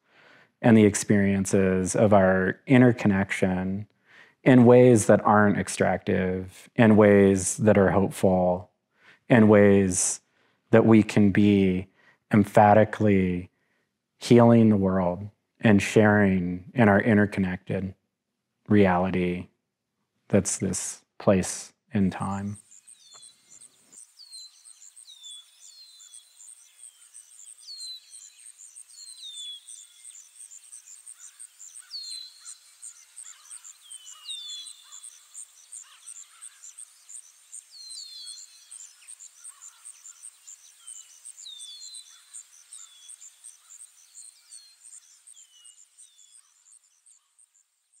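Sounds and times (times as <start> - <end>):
insect chirping: 22.4 - 48.0
bird whistled calls: 22.5 - 47.2.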